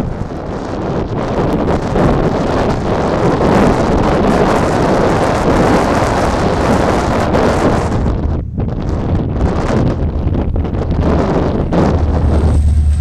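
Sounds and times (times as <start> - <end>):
wind buffeting microphone: 0.0 - 13.0
freight train rolling past: 10.8 - 13.0.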